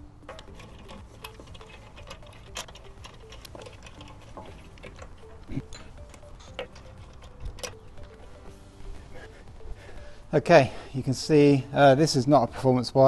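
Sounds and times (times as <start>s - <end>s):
lug nuts clicking: 0.0s - 10.0s.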